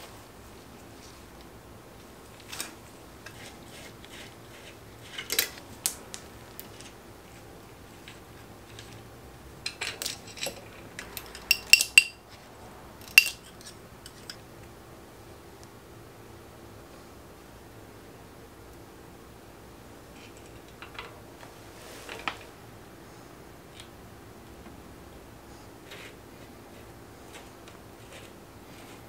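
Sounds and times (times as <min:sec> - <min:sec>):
small metal parts clicking: 0:09.6 - 0:12.2.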